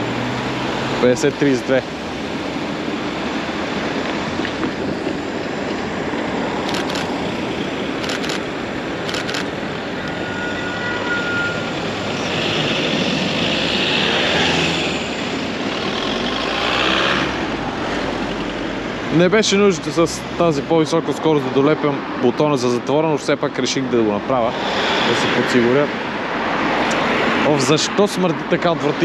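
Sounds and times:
vehicle passing: 0.0s - 10.6s, 11.2s - 22.1s
city traffic: 0.0s - 29.0s
camera shutter clicking: 6.6s - 7.2s, 8.0s - 9.5s.

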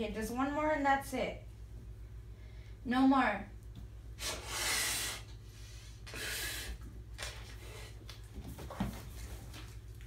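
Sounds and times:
breath blown into a glove: 4.2s - 6.8s.

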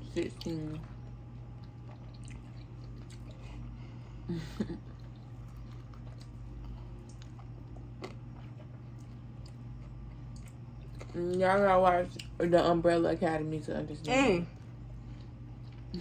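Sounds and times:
low hum: 0.0s - 16.0s
person chewing food: 0.3s - 12.4s, 14.6s - 16.0s.

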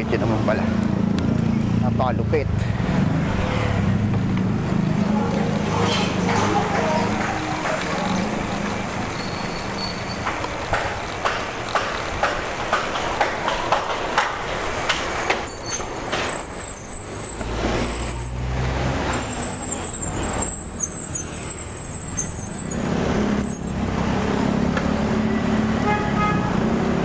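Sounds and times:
passing vehicle engine rumble: 0.0s - 10.7s
road traffic: 0.0s - 27.0s.

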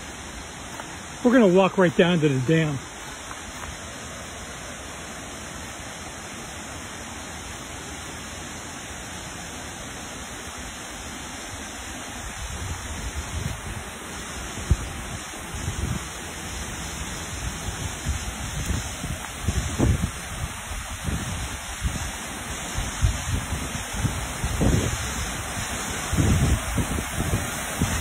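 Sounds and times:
water cascading down rocks: 0.0s - 28.0s
wind buffeting microphone: 14.6s - 16.2s, 17.4s - 22.1s, 22.8s - 28.0s.

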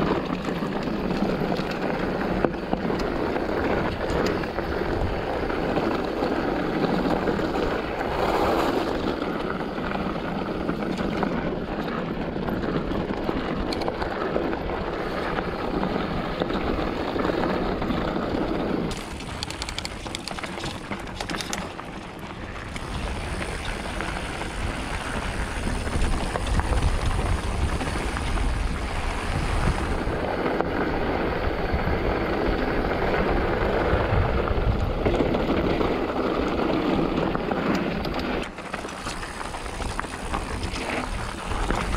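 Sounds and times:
bike tyres rumbling on dirt: 0.0s - 41.9s
quick ticks: 18.9s - 21.6s.

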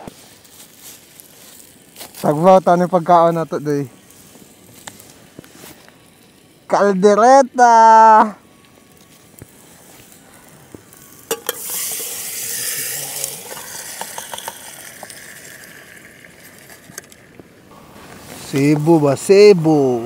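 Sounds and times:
stew sizzling: 0.0s - 20.0s
utensil clinking on pot: 11.3s - 17.2s.

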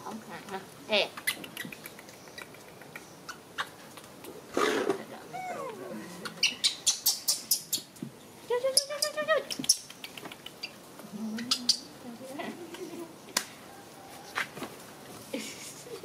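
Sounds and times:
young animals squeaking: 1.0s - 4.1s, 5.2s - 8.0s, 8.6s - 13.2s
animal whine: 5.3s - 6.2s.

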